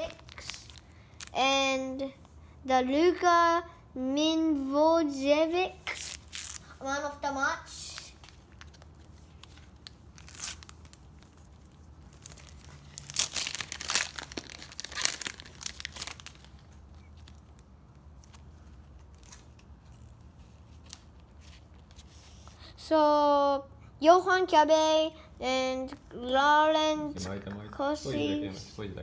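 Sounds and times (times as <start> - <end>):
foil pack tearing and crinkling: 0.0 - 1.3, 5.8 - 6.7, 9.5 - 11.3, 12.1 - 16.7.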